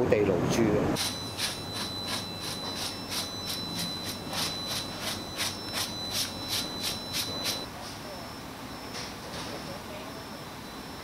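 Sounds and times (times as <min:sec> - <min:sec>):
hand scraping strokes: 0:01.0 - 0:07.7
faint steady high tone: 0:01.0 - 0:11.0.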